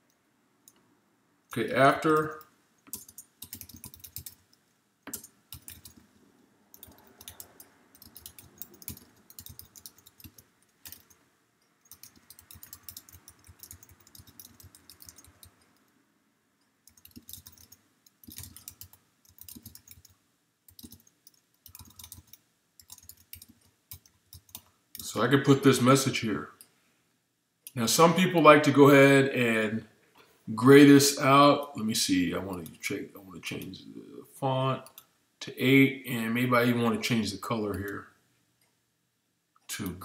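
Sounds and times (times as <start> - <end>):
faint keyboard typing: 1.5 - 16.0, 16.6 - 25.2, 34.8 - 35.1.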